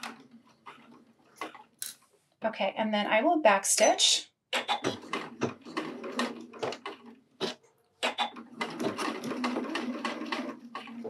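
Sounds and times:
sewing machine stitching: 0.0s - 1.8s, 4.6s - 11.0s.

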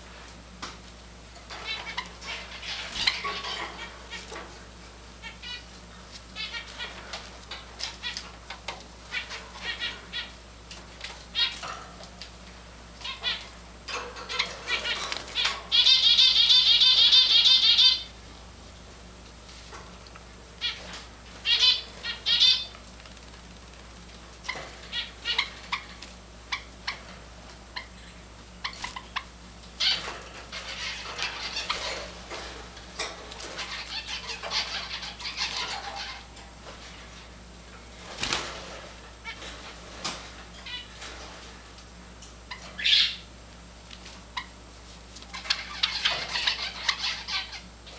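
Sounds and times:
sparrow trilling: 14.3s - 18.1s, 20.6s - 22.8s, 42.5s - 43.3s.

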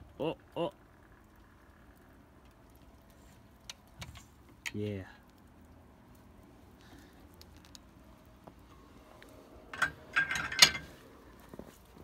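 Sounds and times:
metallic clanks and rattles: 9.7s - 11.0s.

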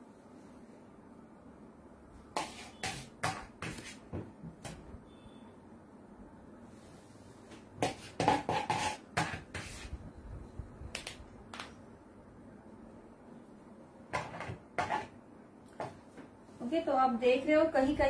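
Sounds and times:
palette knife scraping icing: 2.4s - 4.0s, 7.8s - 9.9s.

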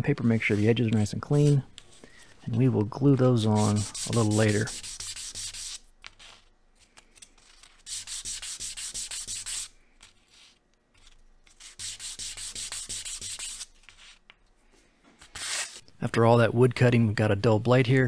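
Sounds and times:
sandpaper rubbing on wood: 3.4s - 5.8s, 7.9s - 9.7s, 11.6s - 13.7s.

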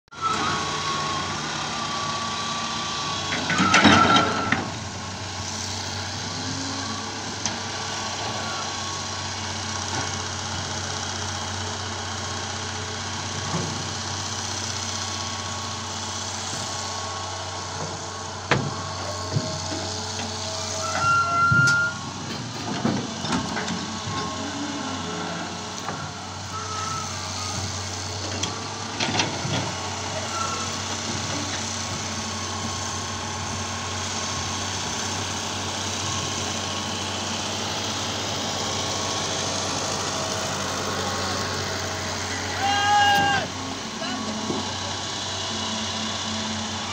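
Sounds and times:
diesel engines running: 0.1s - 46.9s
knocks and clanks: 17.8s - 20.3s, 20.9s - 24.4s
brief high squeaks: 20.6s - 22.0s, 26.5s - 27.6s.

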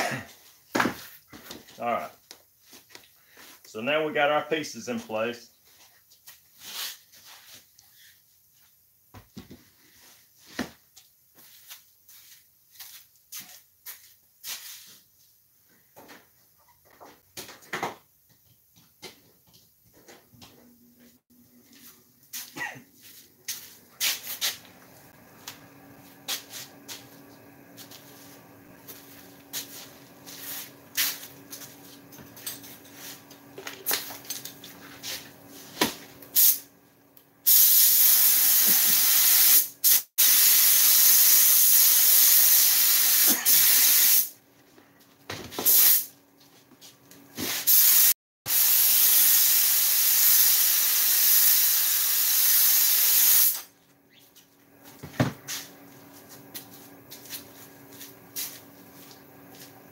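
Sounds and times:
spraying hiss: 37.5s - 44.3s, 47.6s - 53.7s.

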